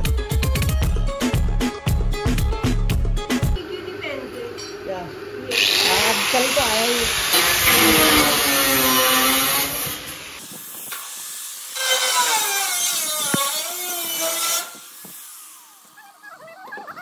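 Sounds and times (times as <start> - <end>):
angle grinder cutting sheet steel: 5.5 - 16.0.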